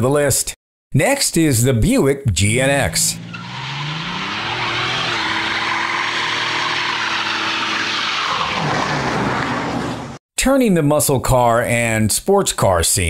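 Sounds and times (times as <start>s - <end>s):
car engine revving: 2.6s - 10.2s
tyres spinning: 3.1s - 10.2s.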